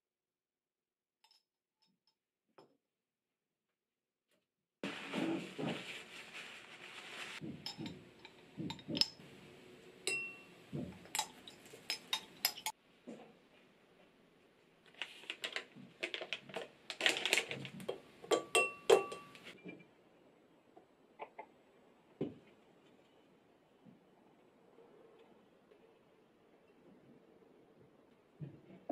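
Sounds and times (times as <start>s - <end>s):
paper towel rustling: 4.8s - 7.6s
glass and spoon clinking: 7.7s - 9.2s, 10.0s - 12.7s, 18.3s - 19.6s
plastic packet crinkling: 14.9s - 17.9s.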